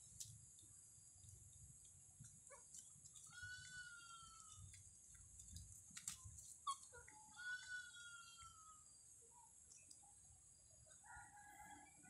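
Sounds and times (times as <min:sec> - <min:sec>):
faint animal calls: 0:02.5 - 0:04.7, 0:06.6 - 0:08.9.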